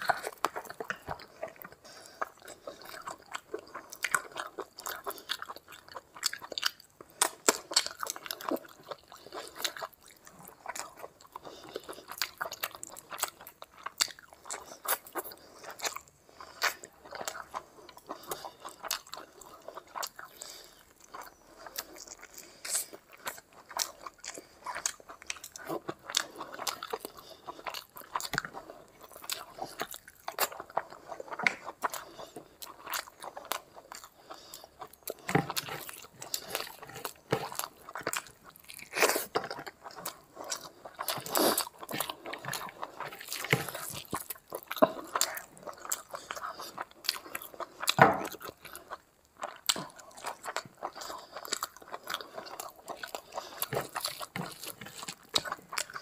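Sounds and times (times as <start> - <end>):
chewing with mouth clicks and smacks: 0.0 - 56.0.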